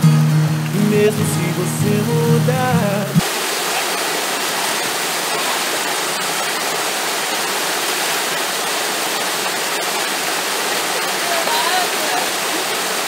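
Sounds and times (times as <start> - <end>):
water pouring over rocks: 3.2 - 13.0.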